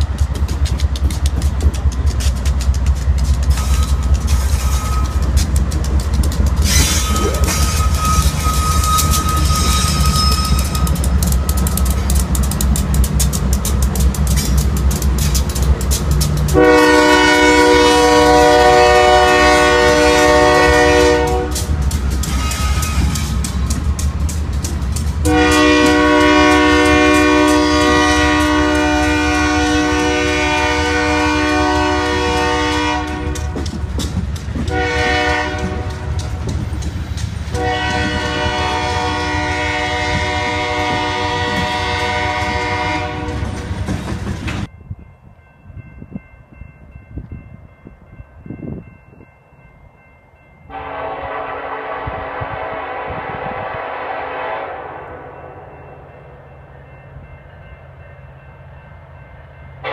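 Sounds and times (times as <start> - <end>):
freight train cars rumbling: 0.0 - 59.9
locomotive horn blasts: 16.5 - 23.4, 25.2 - 33.6, 34.7 - 36.4, 37.5 - 43.6, 50.7 - 55.8.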